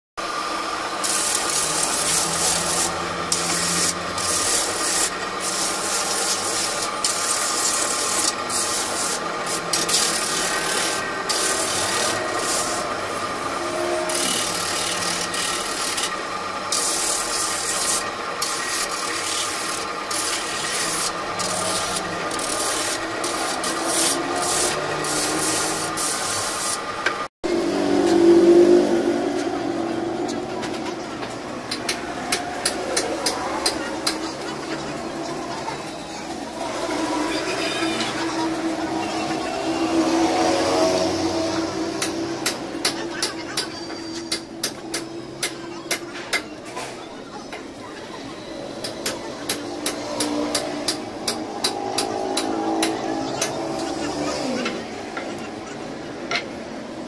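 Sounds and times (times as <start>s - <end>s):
drum sander machine whine: 0.2s - 30.5s
wood rasping on sander: 1.0s - 26.9s.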